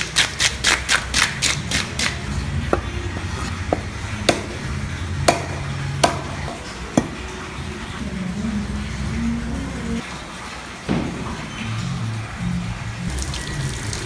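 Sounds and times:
cleaver chopping on wooden block: 3.7s - 7.2s.

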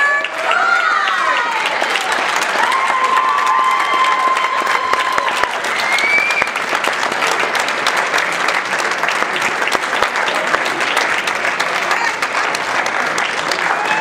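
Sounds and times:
audience applauding: 0.0s - 14.0s
held whistle: 5.7s - 6.6s.

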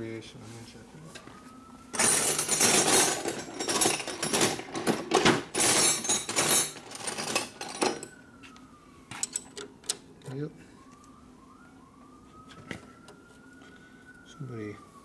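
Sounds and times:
metal hand tools clattering: 2.0s - 8.1s.

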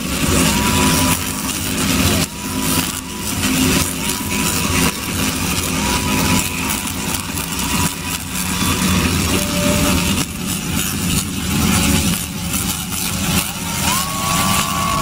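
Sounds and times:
electric arcs buzzing and crackling: 0.0s - 15.0s.

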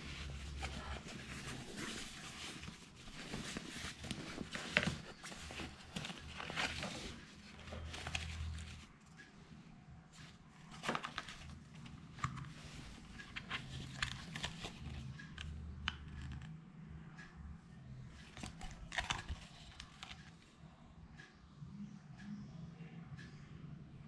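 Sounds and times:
rain jacket fabric rustling: 0.0s - 8.8s.

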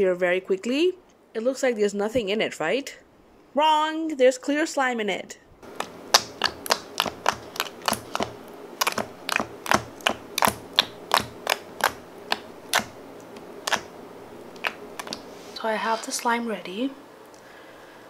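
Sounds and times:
sticky slime pops and clicks: 5.8s - 13.0s, 13.7s - 13.9s, 14.6s - 15.2s.

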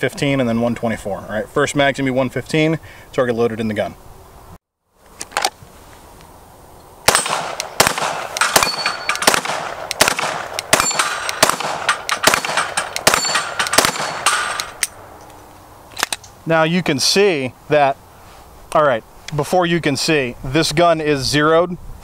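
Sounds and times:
pistol gunshots: 7.1s - 14.8s
steel plates clanging: 8.2s - 9.4s, 10.7s - 15.0s.

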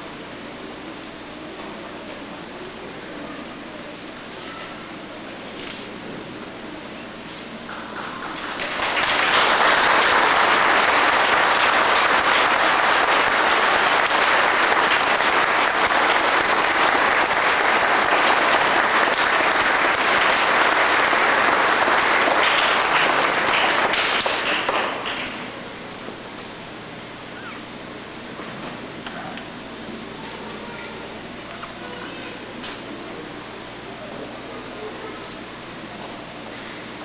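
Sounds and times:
congregation applauding: 7.6s - 25.9s.

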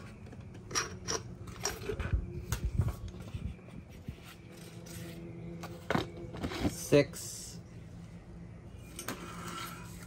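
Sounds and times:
metal parts clicking on concrete: 0.5s - 2.6s.

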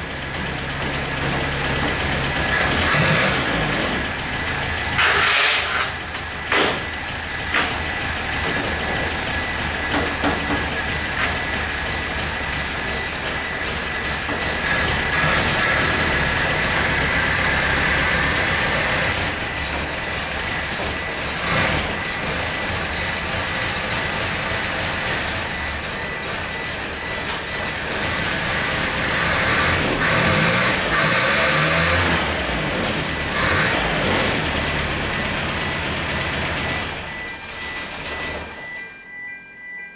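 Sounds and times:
car engine revving: 1.1s - 38.5s.

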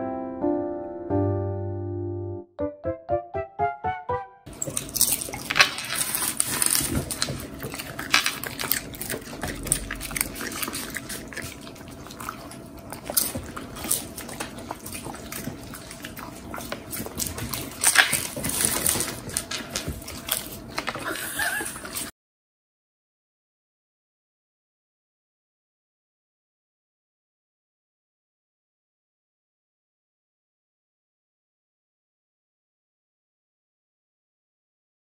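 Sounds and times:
popcorn rustling on table: 4.5s - 11.0s, 16.8s - 22.0s
dogs crunching popcorn: 4.5s - 22.1s.

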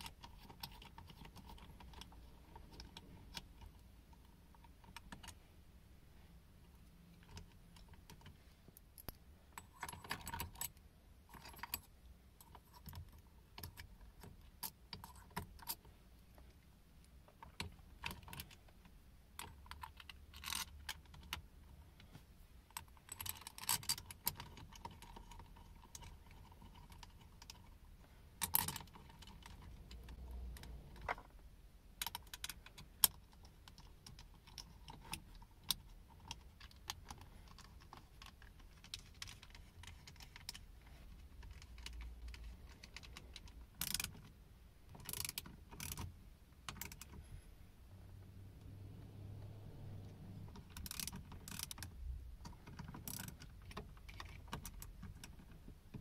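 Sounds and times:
hands fitting parts clicking: 32.0s - 47.3s, 50.0s - 56.0s.

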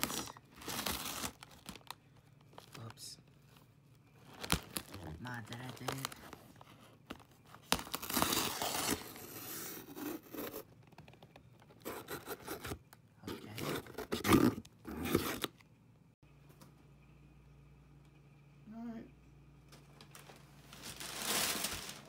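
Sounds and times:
package tearing open: 0.0s - 2.0s, 4.3s - 6.3s, 7.6s - 9.4s
paper rustling: 0.0s - 9.5s, 20.0s - 22.0s.

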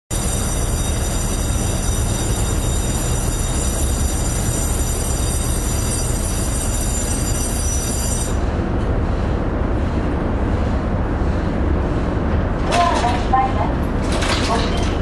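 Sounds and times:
ferry engines rumbling: 8.2s - 15.0s.

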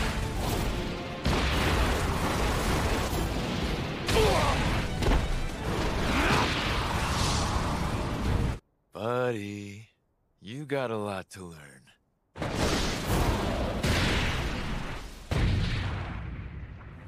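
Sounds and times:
punch impacts and blasts: 0.0s - 8.6s.

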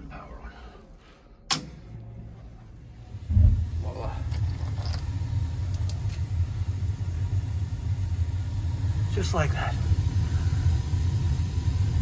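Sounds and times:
gas burners lighting: 1.4s - 12.0s
sharp click: 1.5s - 1.8s
boiler burning low rumble: 1.8s - 12.0s.

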